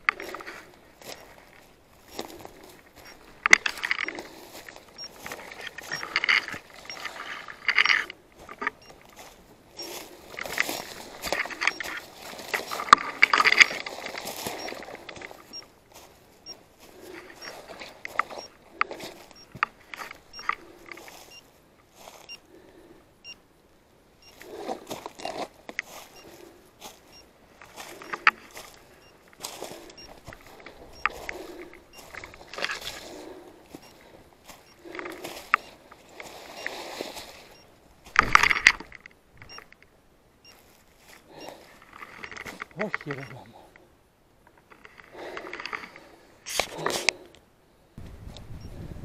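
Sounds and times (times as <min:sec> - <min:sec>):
dry brush rustling and snapping: 0:00.0 - 0:22.3, 0:24.4 - 0:39.9, 0:44.5 - 0:47.3
short high beeps: 0:03.0 - 0:04.2, 0:05.0 - 0:07.1, 0:11.3 - 0:12.0, 0:14.6 - 0:15.7, 0:19.3 - 0:19.6, 0:42.3 - 0:43.5
footsteps through dry leaves: 0:09.2 - 0:18.1.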